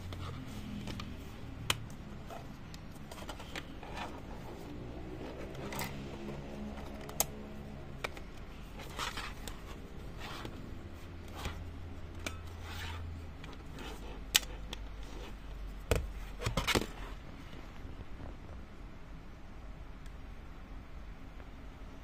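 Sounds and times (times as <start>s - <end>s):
plastic camera body rubbing: 2.2s - 7.2s, 8.8s - 10.6s.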